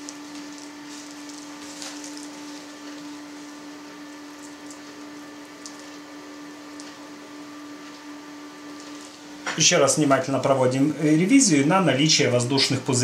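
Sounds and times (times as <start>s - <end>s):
squelching sausage casing: 0.0s - 9.4s
steady hum: 0.0s - 13.0s
soft wet ticks: 4.4s - 6.1s.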